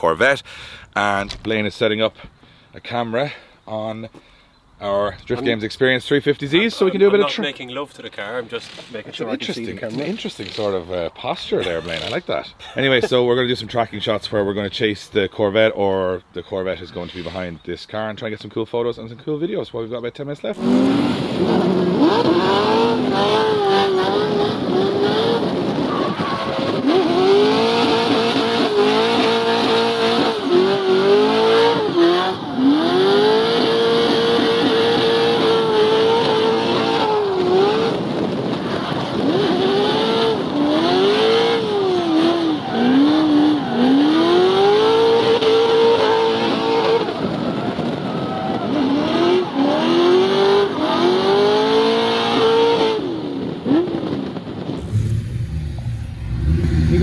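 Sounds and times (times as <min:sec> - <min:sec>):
car engine revving: 0:20.6 - 0:25.8, 0:26.4 - 0:47.4, 0:48.6 - 0:57.0.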